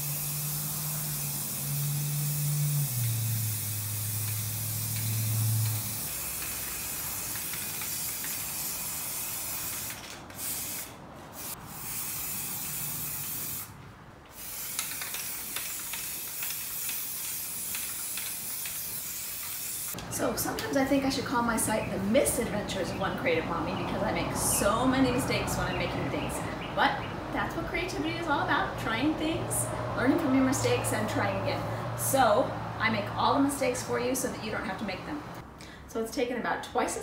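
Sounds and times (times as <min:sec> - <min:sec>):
spray paint can hissing: 0:00.0 - 0:13.7, 0:14.3 - 0:20.0.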